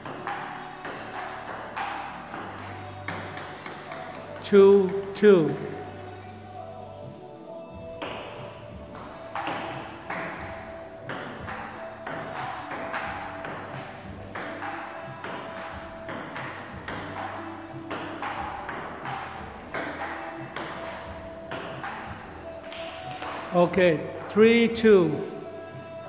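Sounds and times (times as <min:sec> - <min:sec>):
table tennis ball clicking: 0:00.0 - 0:05.7.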